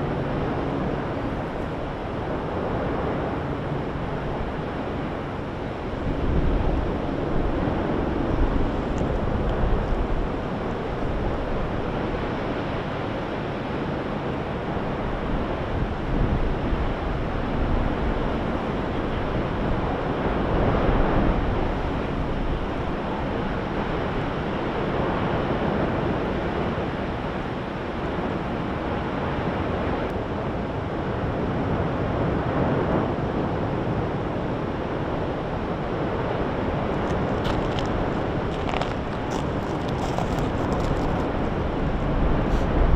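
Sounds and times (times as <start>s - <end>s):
wind buffeting microphone: 0.0s - 27.6s, 29.6s - 42.9s
lava fountain roaring: 30.8s - 42.9s.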